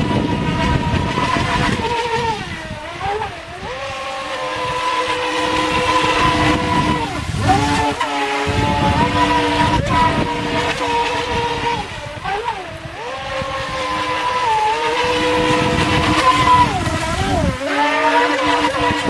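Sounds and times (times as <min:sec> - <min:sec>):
toy boat motor whining: 0:00.0 - 0:19.0.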